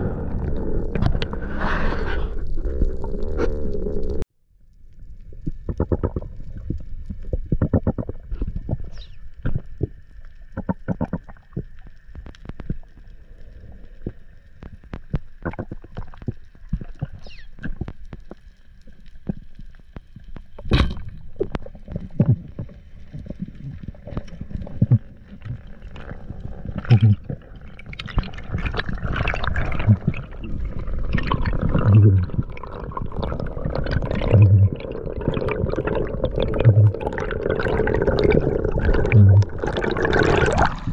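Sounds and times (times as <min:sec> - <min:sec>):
underwater rumble of moving water: 0:00.0 - 0:40.9
sharp clicks and crackles: 0:04.9 - 0:27.1.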